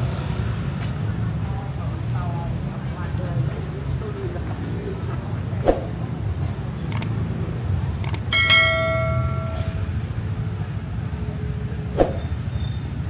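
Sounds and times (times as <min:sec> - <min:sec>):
low street rumble: 0:00.0 - 0:13.0
sharp clicks: 0:06.9 - 0:07.2, 0:08.0 - 0:08.3
metallic bell-like ring: 0:08.3 - 0:10.1.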